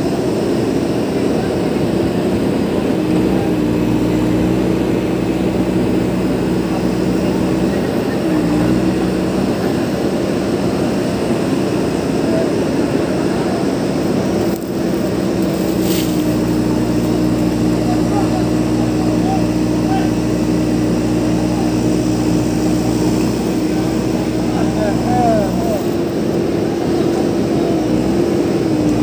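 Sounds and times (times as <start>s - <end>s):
diesel engine droning: 0.0s - 29.0s.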